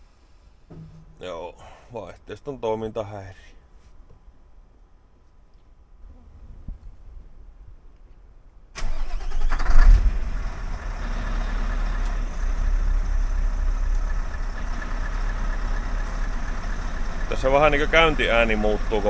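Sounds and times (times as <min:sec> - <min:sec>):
diesel truck engine starting and idling: 0:08.8 - 0:19.0.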